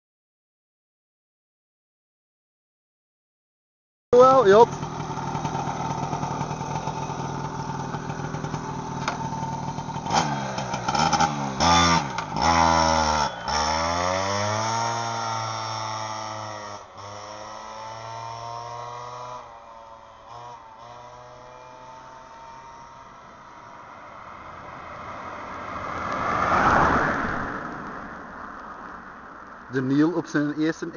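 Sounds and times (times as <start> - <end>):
moped engine revving: 4.2 - 25.8.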